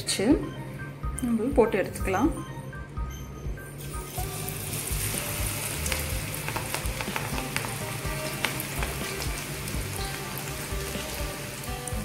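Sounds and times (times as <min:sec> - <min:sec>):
batter deep-frying in hot oil: 0:03.8 - 0:12.0
oil crackling and popping: 0:04.2 - 0:12.0.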